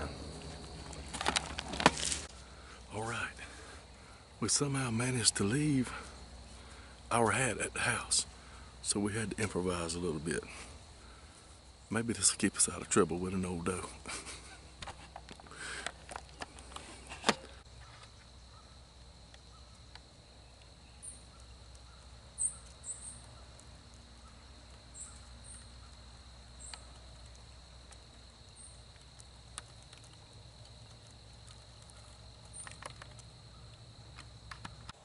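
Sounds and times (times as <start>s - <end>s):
handling rustling: 0.0s - 2.3s
small birds chirping: 2.3s - 14.8s, 15.4s - 34.9s.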